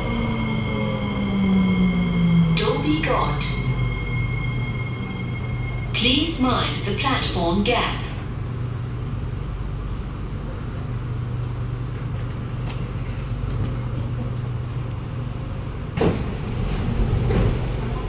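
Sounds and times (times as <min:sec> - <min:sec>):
train low hum drone: 0:00.0 - 0:18.0
train doors opening: 0:15.9 - 0:18.0.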